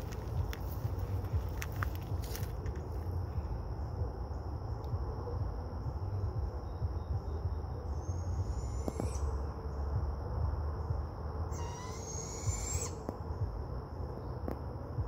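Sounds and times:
insect trill: 0:00.0 - 0:15.0
owl calls rising in pitch: 0:08.0 - 0:09.4, 0:11.5 - 0:13.1.

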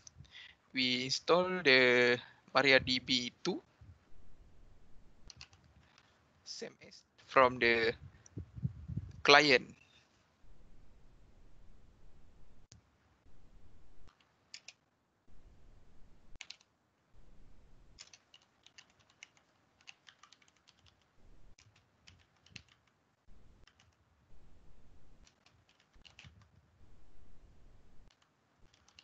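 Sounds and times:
computer keyboard typing: 0:05.3 - 0:06.0, 0:14.1 - 0:14.8, 0:16.4 - 0:16.7, 0:18.0 - 0:23.0, 0:23.6 - 0:24.1, 0:25.2 - 0:26.6, 0:28.1 - 0:29.0.

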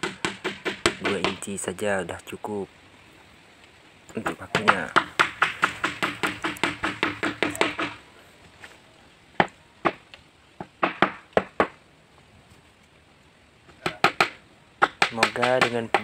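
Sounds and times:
hammer driving nails into wood: 0:00.0 - 0:01.4, 0:04.5 - 0:08.0, 0:10.7 - 0:11.8, 0:13.8 - 0:16.0.

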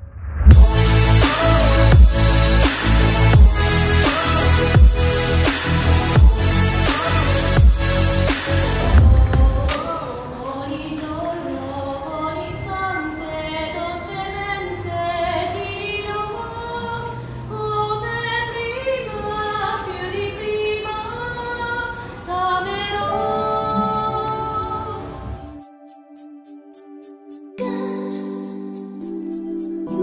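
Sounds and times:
background music: 0:00.4 - 0:15.6, 0:22.3 - 0:30.0.

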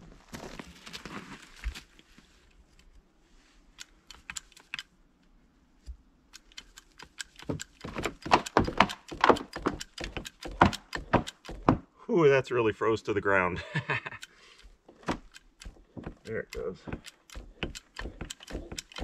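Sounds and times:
scattered clicks: 0:03.8 - 0:04.9, 0:06.3 - 0:11.7, 0:14.0 - 0:19.0
hydraulic pump handle clacking: 0:15.0 - 0:19.0.

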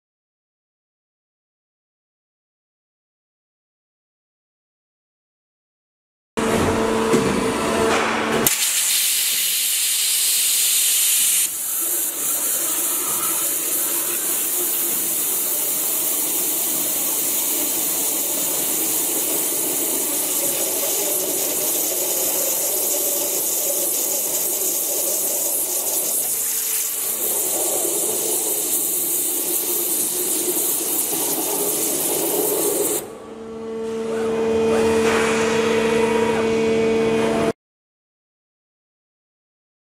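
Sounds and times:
waterjet hissing: 0:08.5 - 0:33.1
machine hum with low tones: 0:33.0 - 0:37.5.

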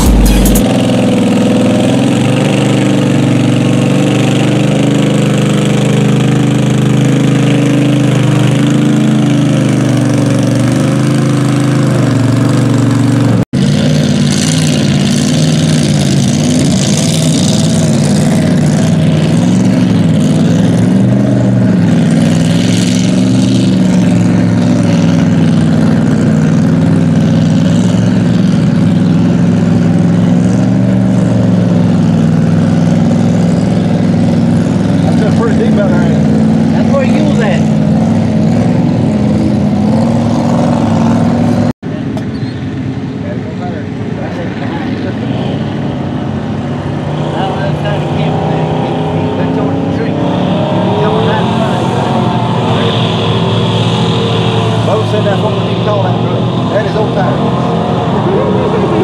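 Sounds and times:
buggy engine revving through water: 0:00.0 - 0:59.0
truck engine running loud: 0:00.0 - 0:59.0.

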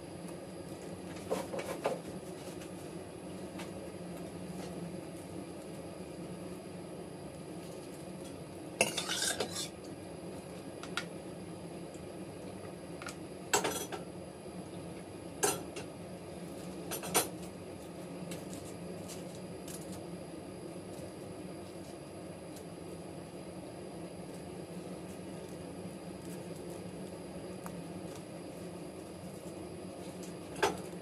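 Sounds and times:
utensils clinking against metal pot: 0:08.8 - 0:09.7.

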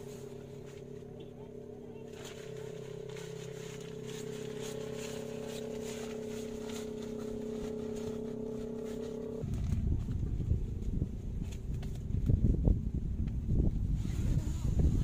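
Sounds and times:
steady droning hum: 0:00.0 - 0:13.2
wind buffeting microphone: 0:09.4 - 0:15.0.

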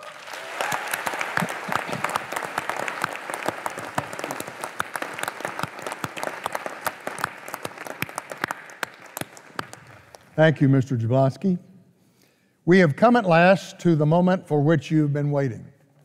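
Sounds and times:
audience applauding: 0:00.0 - 0:10.4.

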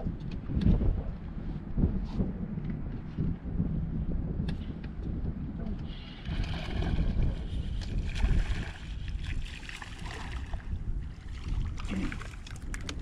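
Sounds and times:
wind rumbling on microphone: 0:00.0 - 0:13.0
water lapping and splashing: 0:05.9 - 0:13.0.

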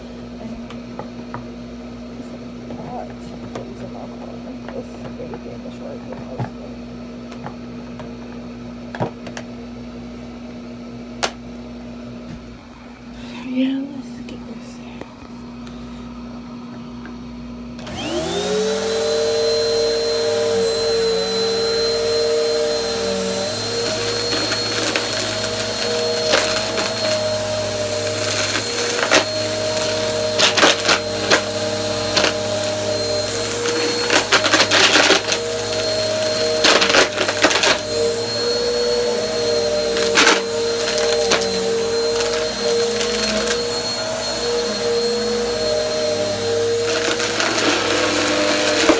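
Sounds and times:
vacuum cleaner motor humming: 0:00.0 - 0:48.9
vacuum sucking up crunchy dirt: 0:18.0 - 0:48.9.

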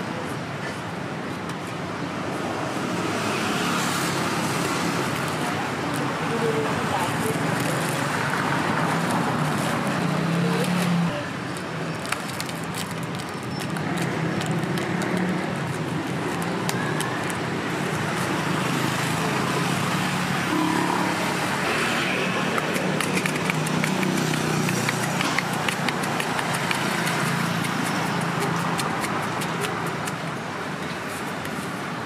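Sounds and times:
traffic noise: 0:00.0 - 0:32.0
sharp ticks and clicks: 0:21.6 - 0:30.4.

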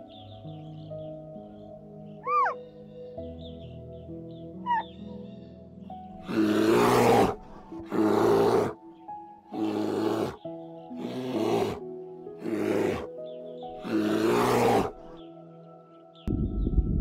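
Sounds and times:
soft background music: 0:00.0 - 0:17.0
young bears growling: 0:06.2 - 0:08.8, 0:09.5 - 0:15.3.

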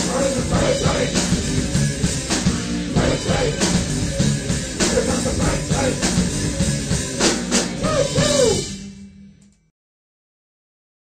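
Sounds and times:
drum hits: 0:00.0 - 0:08.8
hard rock band playing: 0:00.0 - 0:09.3.

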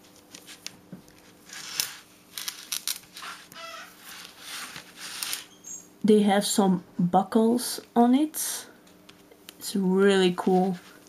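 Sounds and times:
doll handling rustles and clicks: 0:00.0 - 0:05.5, 0:10.4 - 0:11.0
short wavering chirps: 0:05.5 - 0:05.9.

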